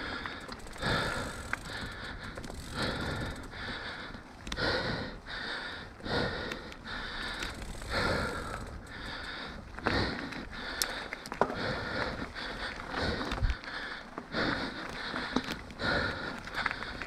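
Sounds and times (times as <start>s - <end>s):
bike rolling over dirt trail: 0.0s - 4.6s, 7.0s - 17.0s
person breathing heavily: 0.0s - 17.0s.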